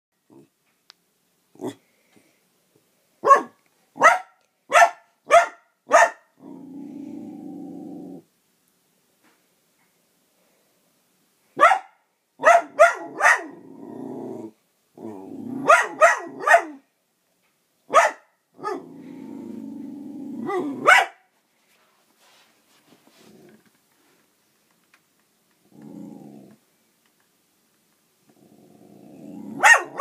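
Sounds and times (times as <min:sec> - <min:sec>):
dog barking: 0:03.2 - 0:06.3, 0:11.6 - 0:13.6, 0:15.6 - 0:16.8, 0:17.9 - 0:18.8, 0:20.5 - 0:21.3, 0:29.6 - 0:30.0
dog growling low: 0:06.4 - 0:08.3, 0:13.5 - 0:15.7, 0:18.6 - 0:20.8, 0:23.2 - 0:23.7, 0:25.7 - 0:26.6, 0:28.3 - 0:29.6.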